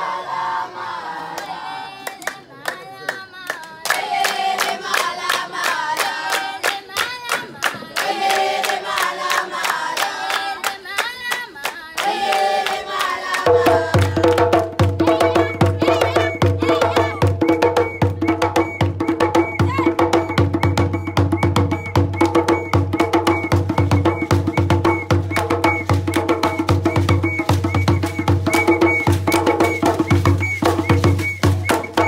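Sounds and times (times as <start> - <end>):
clapped beat: 1.4 - 32.0
person singing: 13.5 - 17.2.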